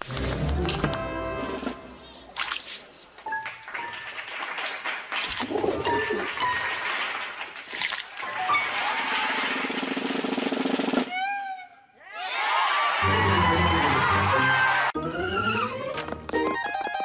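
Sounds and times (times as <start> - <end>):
music: 0.0 - 1.9, 13.0 - 17.0.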